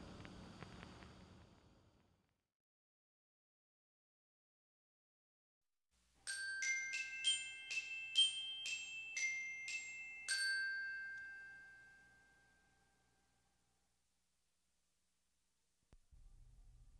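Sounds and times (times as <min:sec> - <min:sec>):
bell-like jingle notes: 0:06.2 - 0:13.5.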